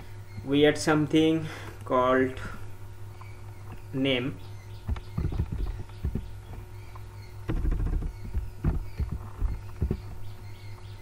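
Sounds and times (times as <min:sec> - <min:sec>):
steady low hum: 0:00.0 - 0:11.0
keyboard keys tapping: 0:04.8 - 0:10.2.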